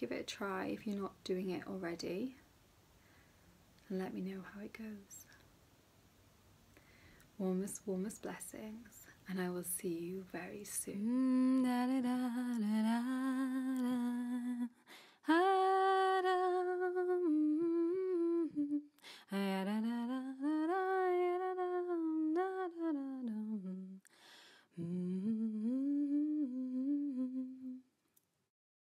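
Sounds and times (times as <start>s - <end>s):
woman humming: 15.4s - 18.9s, 24.8s - 27.8s.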